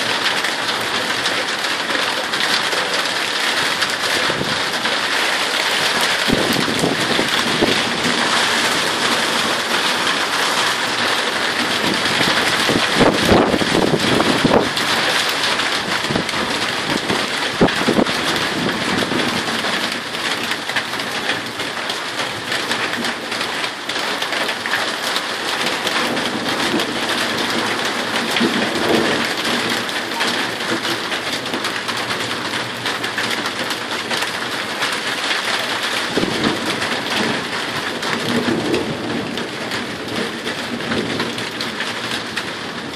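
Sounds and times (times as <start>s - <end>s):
thunder rumbling: 0.0s - 21.8s, 22.4s - 42.9s
heavy rain: 0.0s - 42.9s.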